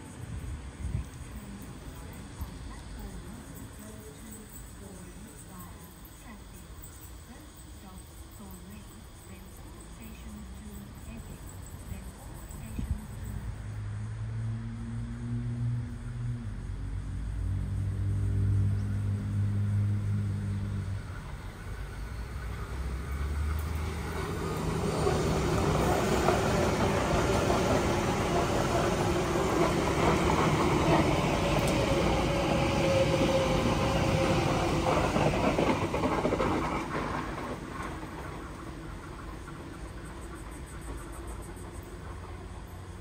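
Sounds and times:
train wheels rumbling on rails: 0.0s - 13.7s, 15.1s - 43.0s
train motor whine: 18.5s - 43.0s.

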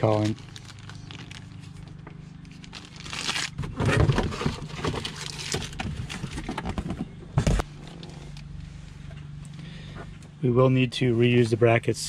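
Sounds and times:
packaging rustling and clicking: 0.0s - 7.0s.

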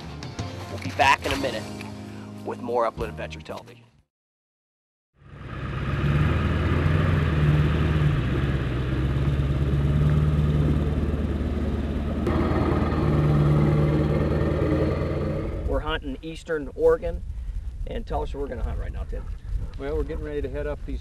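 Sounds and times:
truck engine running: 5.2s - 15.8s.

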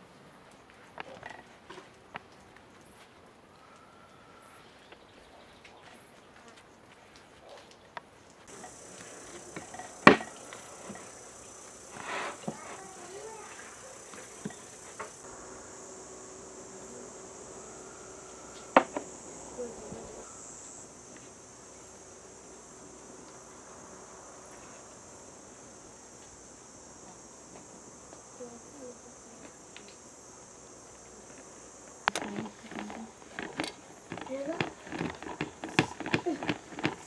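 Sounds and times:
insect chirring: 8.3s - 37.0s.

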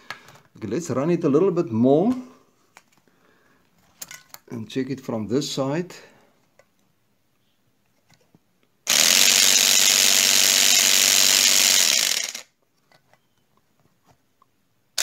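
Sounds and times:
electric compressor motor buzzing: 8.9s - 12.4s.

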